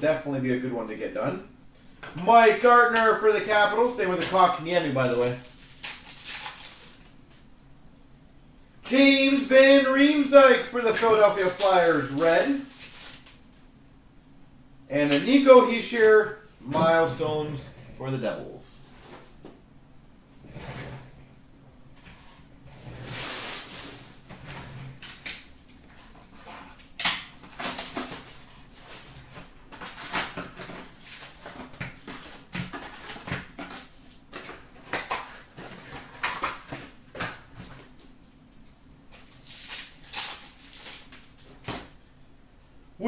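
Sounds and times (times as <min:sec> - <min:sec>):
wrappers crinkling and ripping: 0:04.7 - 0:07.2, 0:11.0 - 0:13.4, 0:39.1 - 0:41.4.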